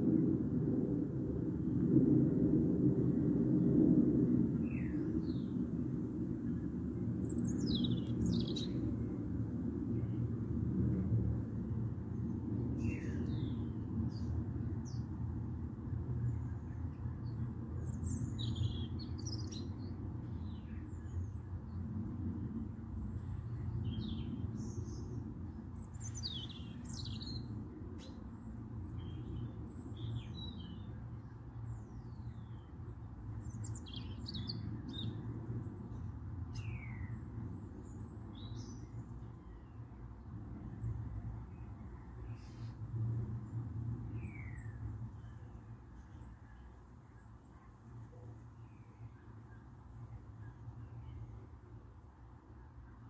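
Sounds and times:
small birds chirping: 7.2s - 8.9s, 25.8s - 30.9s, 33.4s - 35.3s.

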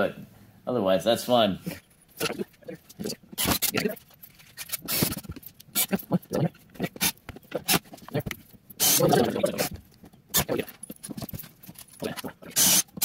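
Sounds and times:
drill driving a screw: 8.8s - 9.0s, 12.6s - 13.0s.

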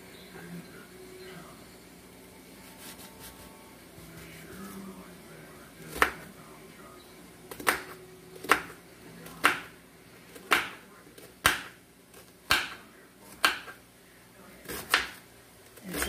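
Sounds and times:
knife cutting onion: 7.5s - 9.7s, 11.4s - 13.8s, 14.6s - 15.2s, 15.8s - 16.0s.

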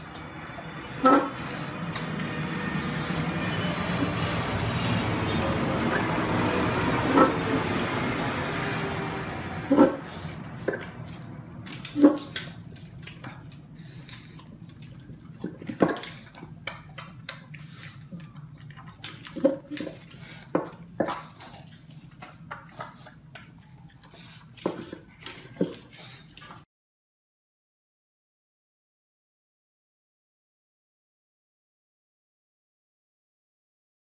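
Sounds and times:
dog eating from hard bowl: 3.0s - 8.6s, 9.7s - 26.6s.

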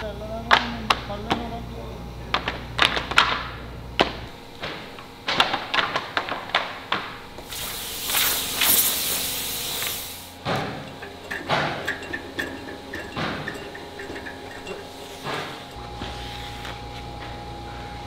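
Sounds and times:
loud hiss: 7.4s - 10.5s
wooden panels knocking: 10.5s - 15.8s.

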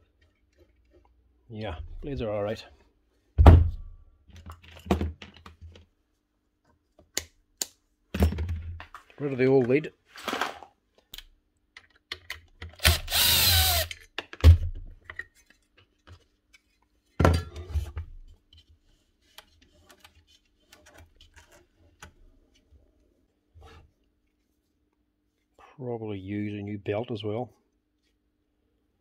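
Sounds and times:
power drill whirring: 12.8s - 13.9s.

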